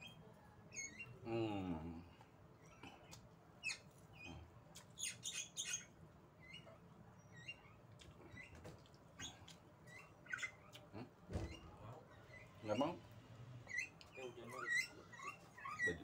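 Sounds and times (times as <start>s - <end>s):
small bird chirping: 0.0s - 1.6s, 2.6s - 13.0s, 13.6s - 16.0s
eating clicks and smacks: 10.7s - 11.0s.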